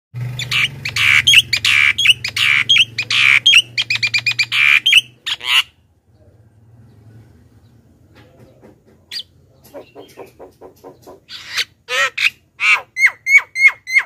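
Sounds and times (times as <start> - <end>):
myna squawking and chattering: 0.4 - 5.8, 9.0 - 14.0.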